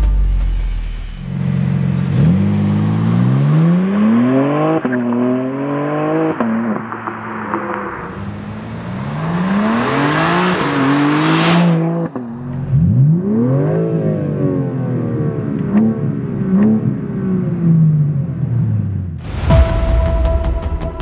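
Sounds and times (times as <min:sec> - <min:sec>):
car engine accelerating: 0:00.0 - 0:19.2
car engine revving: 0:00.0 - 0:19.2
exhaust cracks: 0:03.8 - 0:13.0
music: 0:19.2 - 0:21.0.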